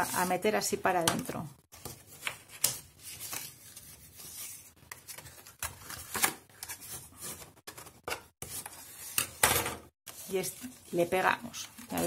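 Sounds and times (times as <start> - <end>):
paper rustling and rubbing: 1.8 - 9.2.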